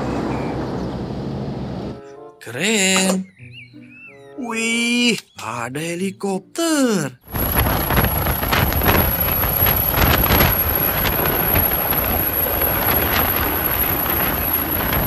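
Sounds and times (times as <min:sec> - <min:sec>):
helicopter rotor and turbine: 0:07.3 - 0:15.0
thin high whine: 0:07.3 - 0:15.0
wind buffeting microphone: 0:07.3 - 0:15.0.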